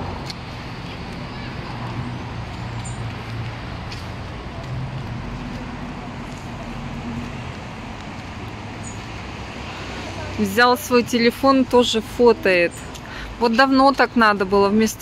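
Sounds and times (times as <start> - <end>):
low engine hum: 0.0 - 10.9
road traffic: 0.0 - 15.0.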